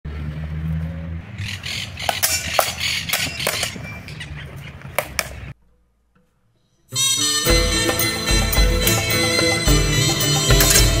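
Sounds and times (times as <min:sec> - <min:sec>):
swords clashing: 0:02.1 - 0:03.8, 0:10.5 - 0:11.0.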